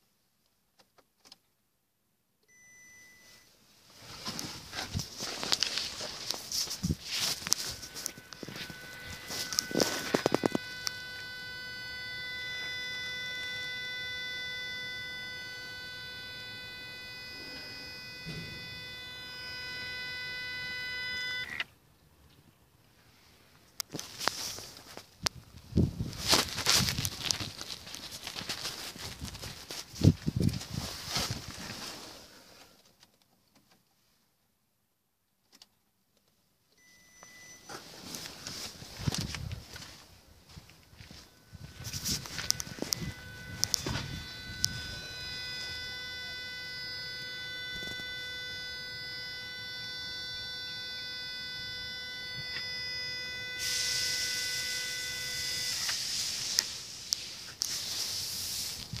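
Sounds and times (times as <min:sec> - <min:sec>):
rustling and handling noise: 0:03.3 - 0:14.5, 0:23.0 - 0:34.2, 0:37.6 - 0:48.2, 0:54.4 - 0:59.0
high-pitched engine whine: 0:06.8 - 0:21.6, 0:41.1 - 0:56.7
sharp clicks: 0:41.7 - 0:46.3
hiss: 0:55.7 - 0:58.9.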